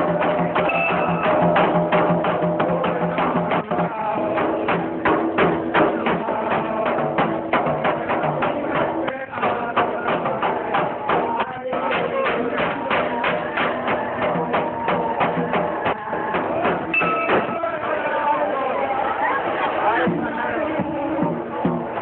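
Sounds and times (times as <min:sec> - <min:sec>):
music with sharp percussive beat: 0:00.0 - 0:18.0, 0:20.0 - 0:22.0.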